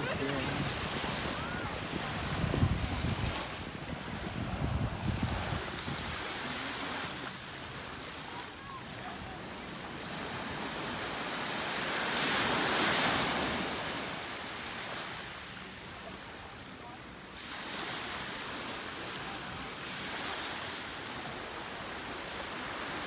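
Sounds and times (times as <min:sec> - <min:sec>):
wind on microphone: 0:00.0 - 0:06.4
surf washing ashore: 0:00.0 - 0:23.0.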